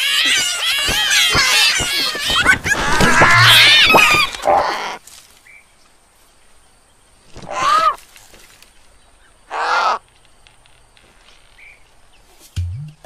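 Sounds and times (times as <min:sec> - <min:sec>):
animal calls: 0:00.0 - 0:05.0, 0:07.4 - 0:08.0, 0:09.5 - 0:10.0.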